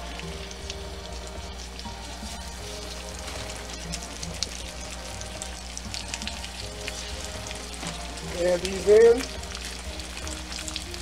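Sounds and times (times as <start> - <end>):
meat sizzling in a frying pan: 0.0 - 11.0.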